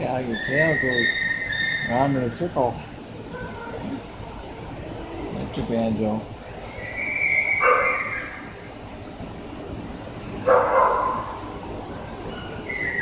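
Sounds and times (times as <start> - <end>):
dog whining: 0.4 - 2.3, 12.3 - 13.0
dog barking: 7.6 - 8.2, 10.4 - 11.4.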